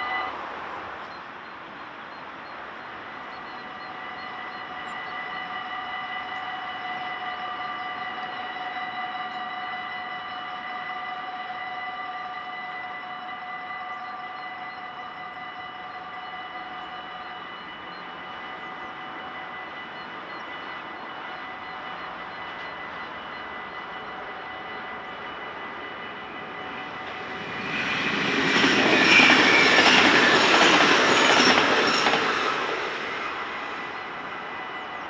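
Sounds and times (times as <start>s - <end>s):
level crossing warning bells ringing: 12.8s - 32.5s.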